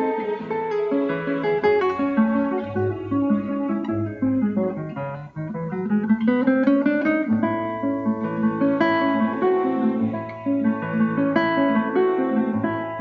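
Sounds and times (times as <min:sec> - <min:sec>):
plucked acoustic guitar music: 0:00.0 - 0:13.0.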